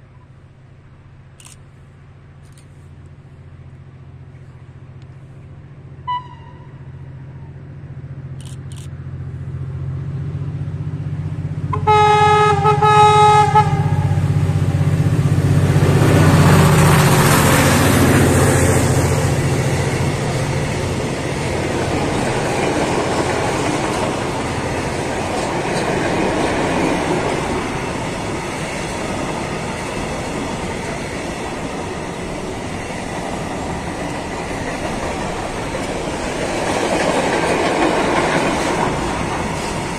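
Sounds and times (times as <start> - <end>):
low rumble of approaching train: 0.0 - 39.9
train wheels rushing on rails: 2.4 - 39.9
train horn: 6.0 - 7.0, 11.7 - 14.4.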